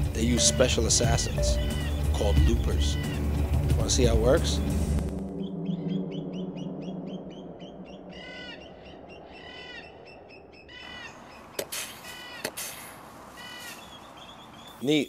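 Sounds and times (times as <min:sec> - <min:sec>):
birds chirping: 0:00.0 - 0:15.0
harsh cawing calls: 0:01.5 - 0:03.7, 0:07.6 - 0:14.6.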